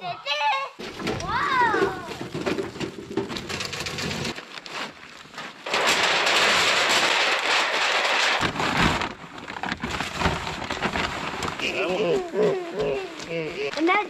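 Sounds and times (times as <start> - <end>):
gear scraping and clattering: 0.8 - 11.7
rustling: 0.8 - 14.0.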